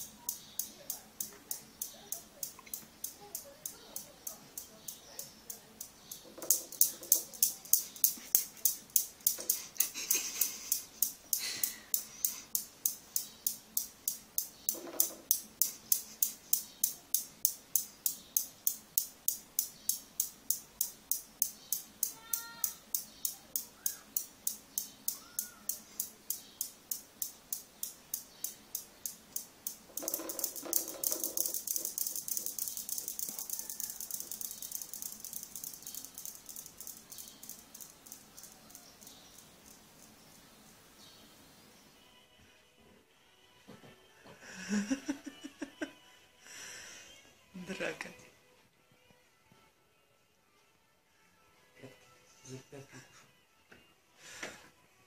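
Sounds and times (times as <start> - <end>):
sharp regular ticking: 0.0 - 40.7.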